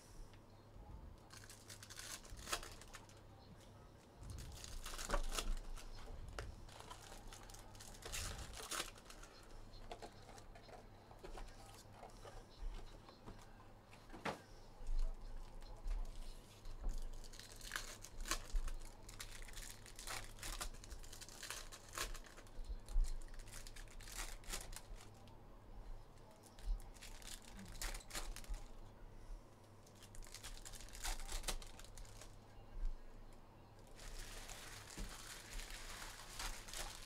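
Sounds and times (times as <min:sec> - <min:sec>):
foil wrappers crinkling and tearing: 0:01.2 - 0:12.4, 0:15.0 - 0:25.3, 0:26.4 - 0:28.7, 0:29.8 - 0:32.4, 0:33.8 - 0:37.0
cards being handled: 0:04.4 - 0:14.4.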